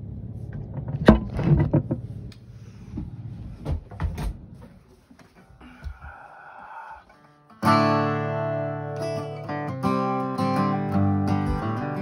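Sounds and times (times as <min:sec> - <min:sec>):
rustling and bumping: 0:00.5 - 0:06.1.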